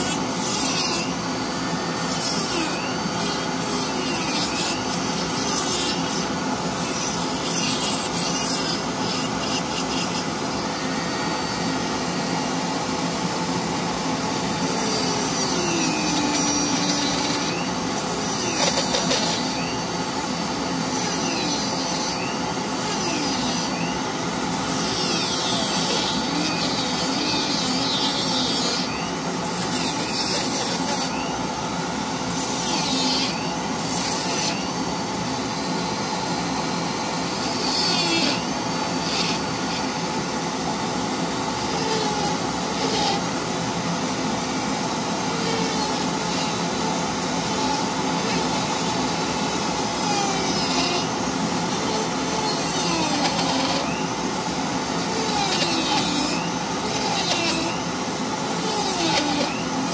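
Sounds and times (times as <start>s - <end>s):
rotary tool motor whine: 0.0s - 59.9s.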